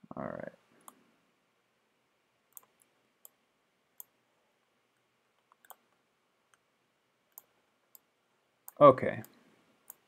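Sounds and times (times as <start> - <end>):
faint computer mouse clicks: 2.5 - 3.4, 5.4 - 6.6, 7.3 - 10.0.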